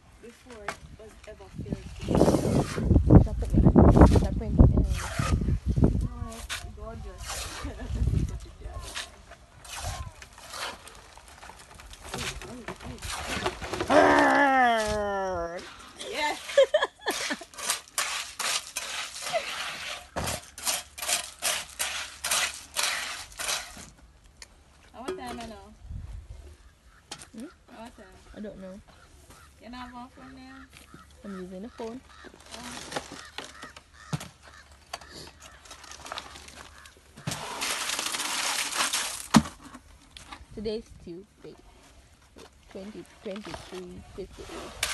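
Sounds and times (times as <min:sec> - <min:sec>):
tool scraping wet concrete: 0:01.8 - 0:03.0, 0:03.9 - 0:05.5, 0:06.3 - 0:13.9, 0:15.6 - 0:24.0, 0:35.0 - 0:39.8, 0:42.8 - 0:44.9
faint fowl calls: 0:26.5 - 0:37.2
wet concrete pouring onto floor: 0:37.5 - 0:39.3.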